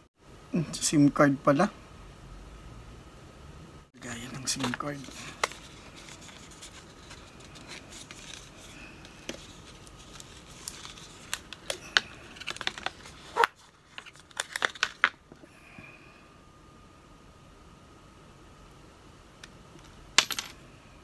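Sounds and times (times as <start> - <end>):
cardboard rustling: 4.4 - 15.1.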